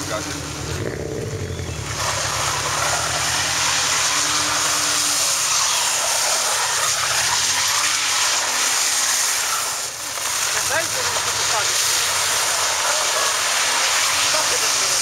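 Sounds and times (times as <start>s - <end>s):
car engine revving high: 0.0s - 9.5s
tyres spinning: 0.0s - 15.0s.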